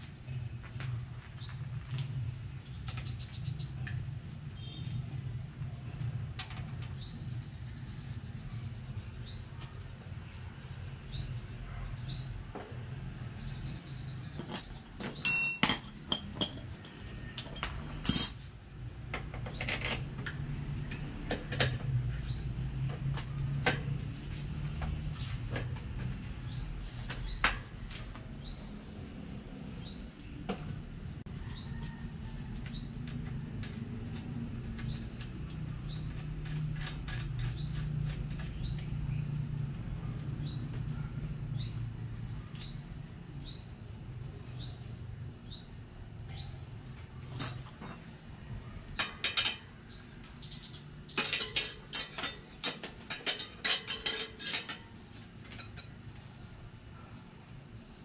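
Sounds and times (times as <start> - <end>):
hand tool clinking on metal: 14.4 - 18.6, 47.3 - 48.1, 51.2 - 56.0.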